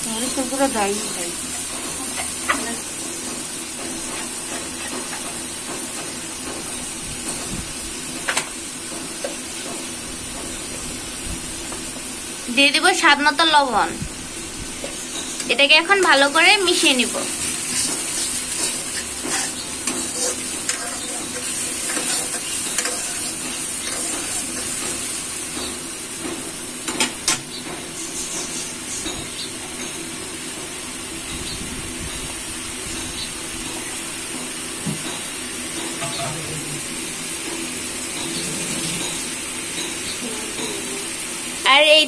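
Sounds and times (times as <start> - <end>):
masala sizzling in oil: 0.0 - 42.0
spatula scraping the pan: 17.2 - 25.2.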